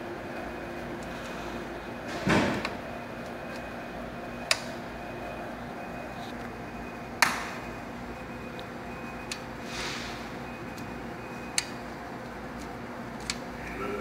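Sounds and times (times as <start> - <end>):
switch clicks: 4.4 - 4.7.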